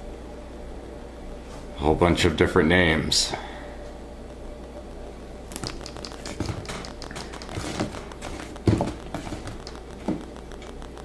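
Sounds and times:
cardboard packaging clicks and rustles: 0:05.5 - 0:10.7.

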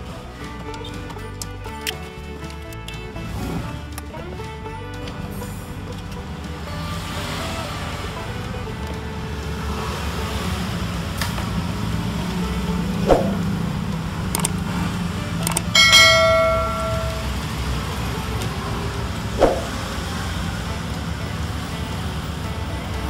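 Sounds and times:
notification bell ding: 0:15.8 - 0:17.4.

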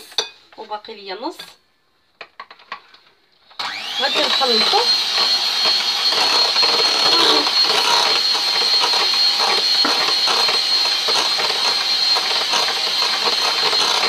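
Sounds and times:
hand mixer whining: 0:03.6 - 0:14.0.

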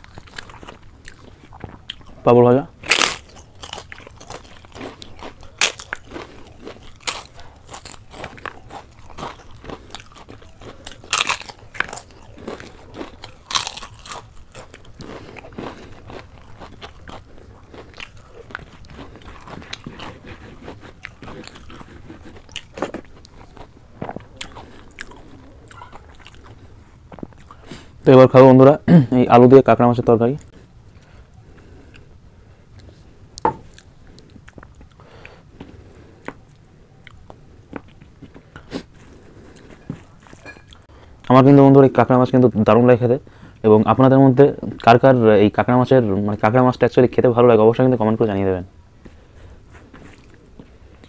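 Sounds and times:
crisp crunching and chewing: 0:00.0 - 0:27.8, 0:32.8 - 0:40.9.

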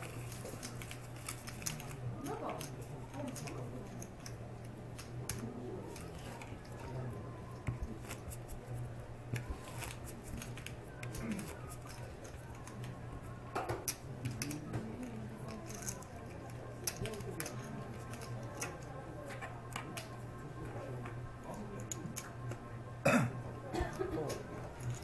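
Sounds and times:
faint room chatter: 0:00.0 - 0:25.0
steady low hum: 0:00.0 - 0:25.0
playing cards and chips clicking: 0:00.1 - 0:06.7, 0:09.3 - 0:13.0, 0:13.6 - 0:20.2.

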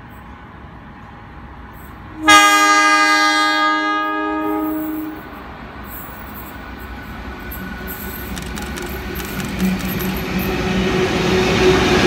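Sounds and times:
low rumble of train: 0:00.0 - 0:12.0
locomotive air horn blast: 0:02.2 - 0:05.4.

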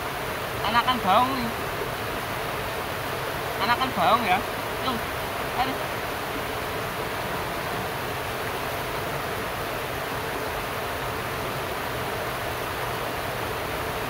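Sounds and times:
river rushing over rocks: 0:00.0 - 0:14.0.

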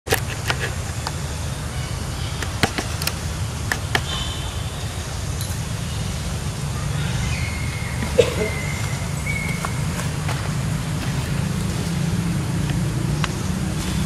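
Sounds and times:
steady low rumble: 0:00.8 - 0:14.0
sharp clicks: 0:02.3 - 0:04.2.

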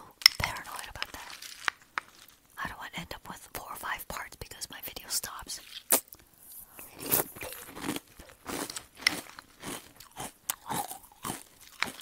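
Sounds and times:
person chewing crunchy cereal: 0:00.4 - 0:02.4, 0:05.6 - 0:12.0.

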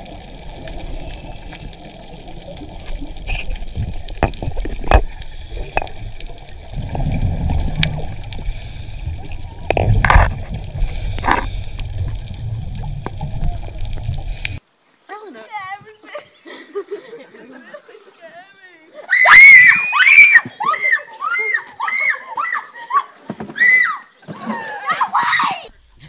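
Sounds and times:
gurgling underwater water noise: 0:00.0 - 0:14.6
rushing water surges: 0:00.0 - 0:14.6.

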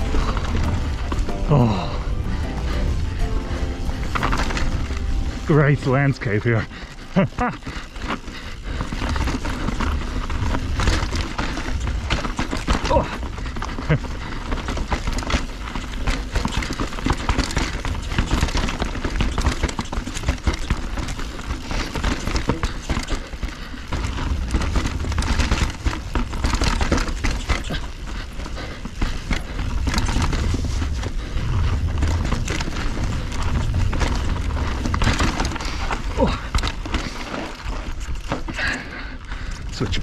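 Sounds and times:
low rumble: 0:00.0 - 0:11.4
bike rattling and clattering: 0:00.0 - 0:40.0
tyres crunching over stones: 0:00.0 - 0:40.0.

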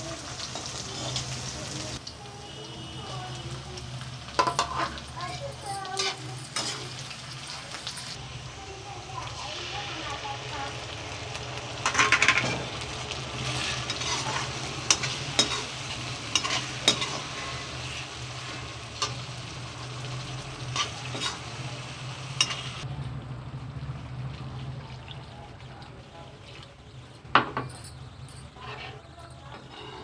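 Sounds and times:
food sizzling in a wok: 0:00.0 - 0:27.0
metal spatula scraping a pan: 0:04.4 - 0:05.0, 0:05.9 - 0:07.1, 0:11.8 - 0:19.4, 0:20.6 - 0:21.7, 0:22.4 - 0:22.8, 0:28.5 - 0:30.0.

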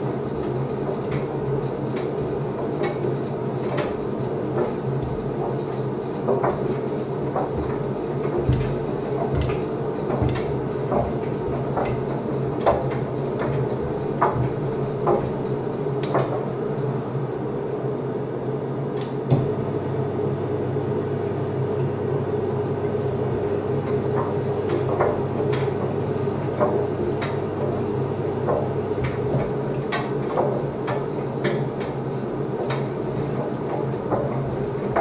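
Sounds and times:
washer-dryer motor hum: 0:00.0 - 0:35.0
load knocking in a drum: 0:06.3 - 0:16.5.

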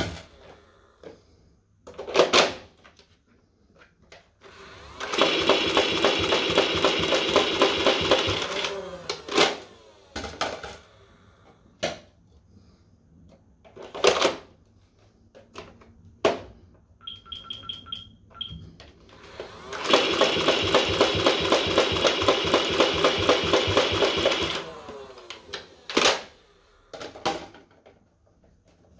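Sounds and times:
toy blaster firing full-auto: 0:05.0 - 0:10.5, 0:19.4 - 0:26.4
electronic beeps: 0:17.0 - 0:18.6.

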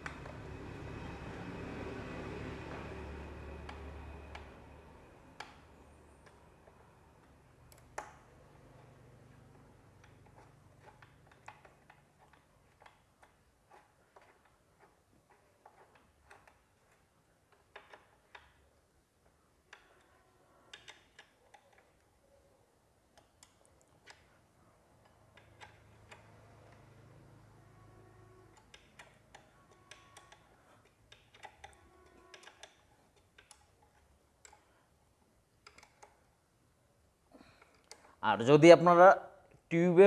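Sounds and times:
faint low hum: 0:00.0 - 0:38.4
metallic clicks of hand tool: 0:28.6 - 0:34.8.

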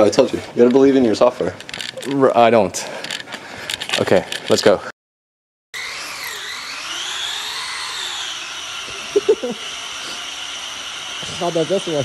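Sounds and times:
electric motor whining: 0:05.8 - 0:12.0.

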